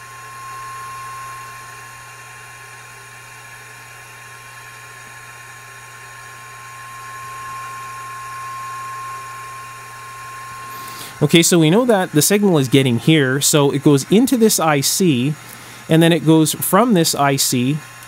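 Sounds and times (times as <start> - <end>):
steady test tone: 7.1 - 18.0.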